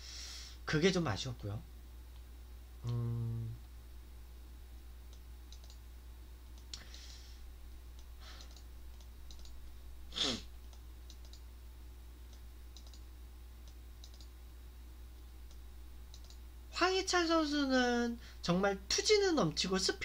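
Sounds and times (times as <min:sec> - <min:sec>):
steady low hum: 0:00.0 - 0:20.0
faint scattered clicks: 0:05.1 - 0:05.8, 0:06.5 - 0:06.9, 0:07.9 - 0:09.6, 0:10.6 - 0:11.5, 0:12.3 - 0:14.3, 0:15.2 - 0:16.4.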